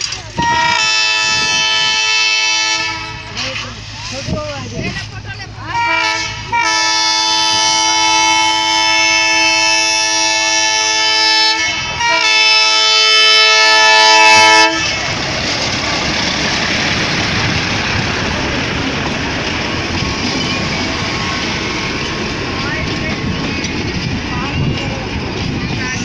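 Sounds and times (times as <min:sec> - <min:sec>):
train coaches rumbling past: 0:00.0 - 0:26.0
locomotive horn blast: 0:00.3 - 0:03.6, 0:05.6 - 0:15.0.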